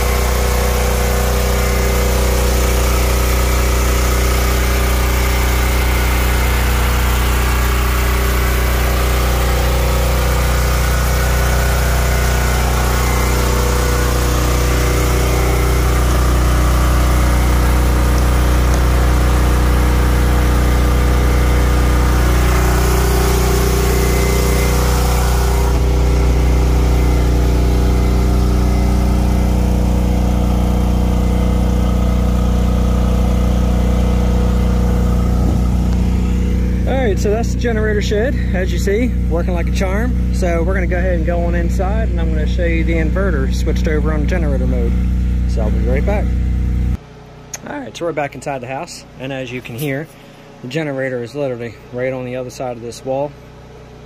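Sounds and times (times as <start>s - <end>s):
generator engine running: 0.0s - 54.0s.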